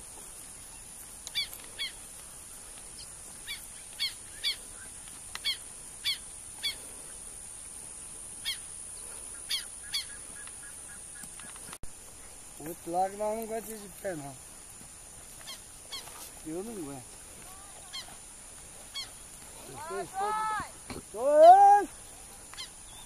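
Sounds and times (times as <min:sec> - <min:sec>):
steady high hiss: 0:00.0 - 0:23.0.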